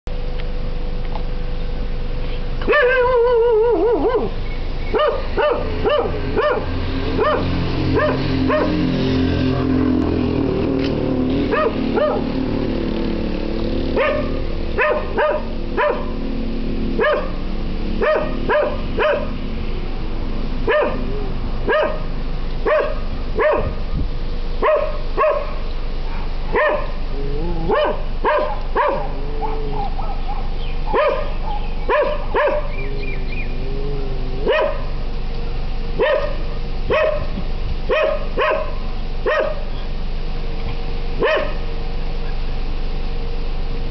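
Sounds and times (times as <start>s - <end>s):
dog barking: 2.6s - 8.8s, 11.5s - 12.3s, 14.0s - 16.1s, 17.0s - 17.4s, 18.0s - 19.3s, 20.7s - 23.8s, 24.6s - 27.0s, 27.7s - 32.8s, 34.4s - 35.0s, 36.0s - 39.7s, 41.2s - 41.6s.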